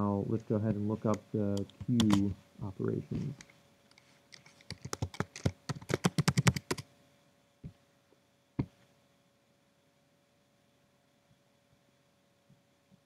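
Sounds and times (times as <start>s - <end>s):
fast typing on keyboard: 1.6s - 2.3s, 4.3s - 6.8s.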